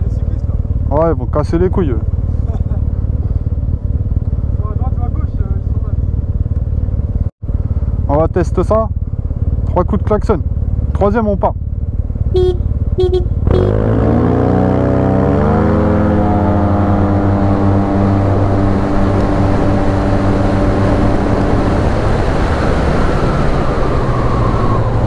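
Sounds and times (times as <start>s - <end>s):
scooter engine revving: 11.7s - 25.0s
short horn beep: 12.3s - 13.8s
wind noise on microphone: 17.2s - 25.0s.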